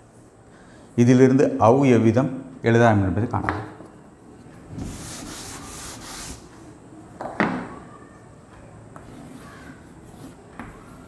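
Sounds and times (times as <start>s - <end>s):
chalk scratching on blackboard: 4.8s - 6.5s, 9.0s - 11.0s.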